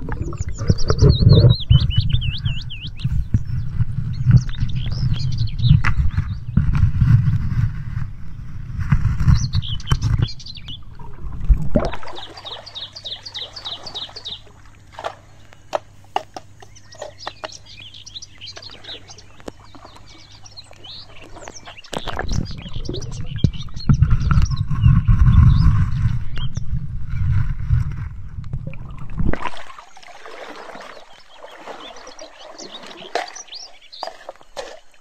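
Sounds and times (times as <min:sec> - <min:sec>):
underwater churning and knocking: 0:00.0 - 0:07.7, 0:20.9 - 0:26.5, 0:31.7 - 0:35.0
birds chirping: 0:00.0 - 0:27.4, 0:29.6 - 0:35.0.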